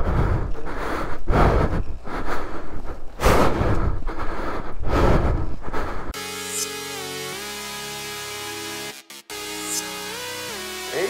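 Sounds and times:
heavy breathing into microphone: 0.0 - 6.2.

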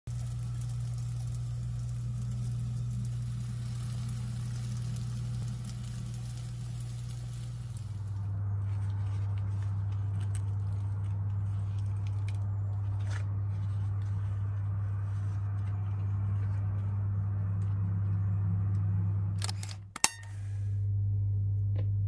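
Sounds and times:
steady low hum: 0.0 - 22.0
flatbread tearing: 0.1 - 16.8.

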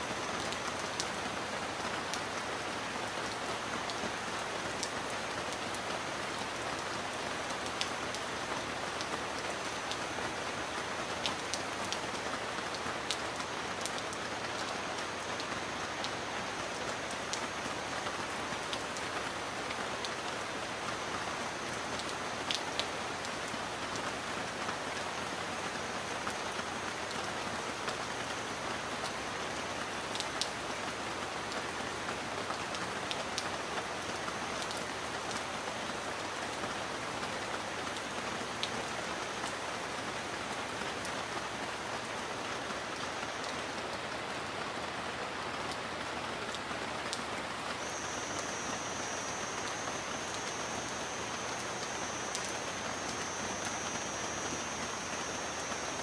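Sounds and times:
raindrops ticking on surface: 0.1 - 56.0
heavy rain hissing: 38.8 - 56.0.

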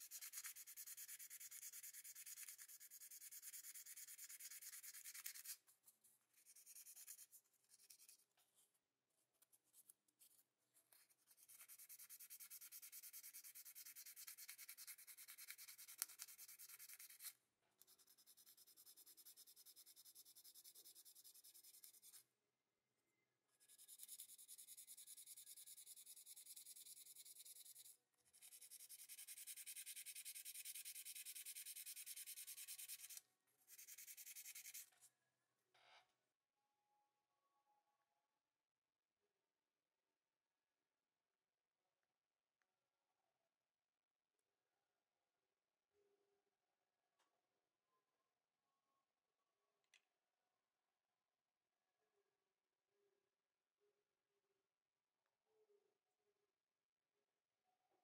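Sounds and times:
sanding sponge scratching on metal: 0.0 - 5.6, 23.7 - 34.8.

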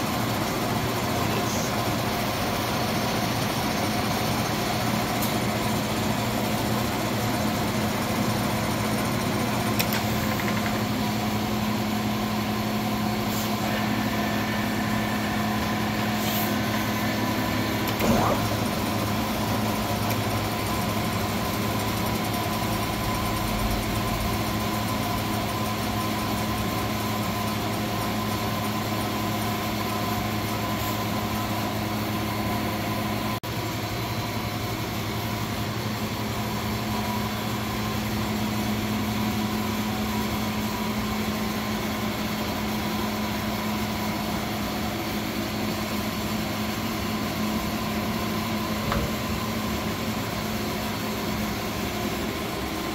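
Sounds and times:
lathe running: 0.0 - 33.2.

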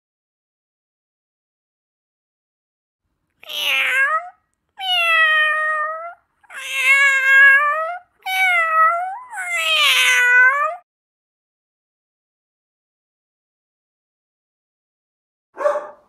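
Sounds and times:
cat meowing: 3.4 - 10.8.

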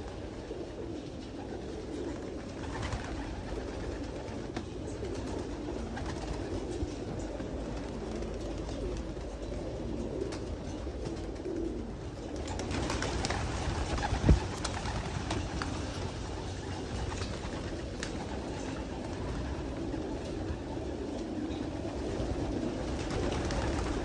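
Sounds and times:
pigeons cooing: 0.0 - 24.0
wing flap: 1.4 - 6.8, 12.3 - 20.8, 21.8 - 24.0.

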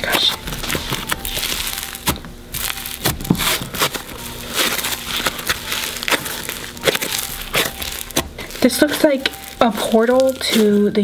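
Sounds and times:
slime squished by hand: 0.7 - 10.8.

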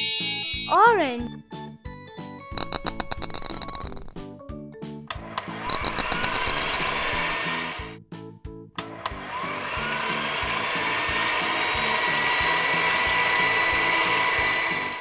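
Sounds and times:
children's music with bass line: 0.0 - 8.7
toy motor whirring: 2.6 - 4.1, 5.4 - 8.0, 9.0 - 15.0.

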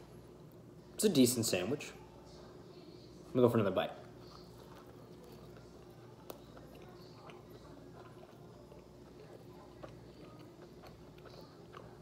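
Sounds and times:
faint steady hum: 0.0 - 12.0
quiet chewing: 4.0 - 12.0.

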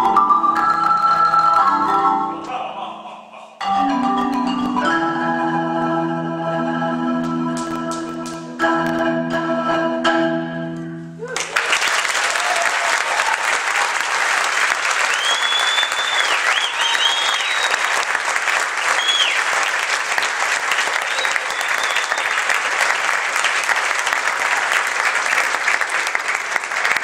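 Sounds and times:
audience applauding: 11.3 - 27.0
high whistles: 15.0 - 18.0, 18.8 - 19.5, 20.9 - 22.5.

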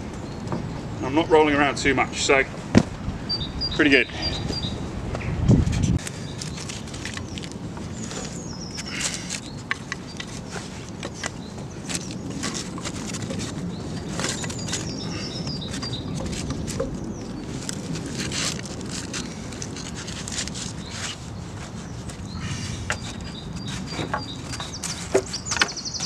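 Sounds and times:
birds chirping: 3.2 - 5.4, 6.0 - 17.9, 20.6 - 26.0
wood knocking and scraping on wood: 9.1 - 26.0.

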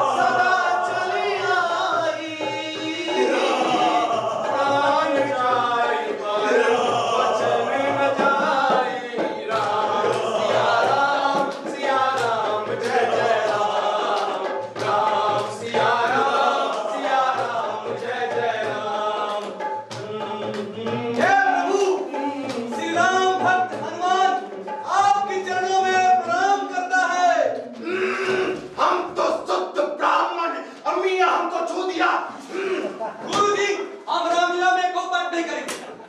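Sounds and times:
group singing in chorus: 0.0 - 26.6, 27.3 - 30.0
sharp percussive strikes: 0.0 - 29.6.

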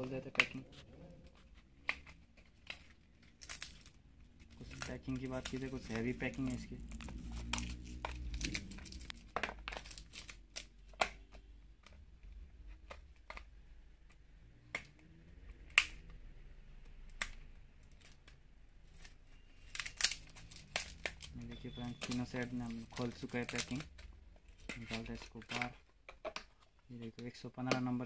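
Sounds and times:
packaging wrap crinkling: 0.0 - 11.0, 17.0 - 26.7.

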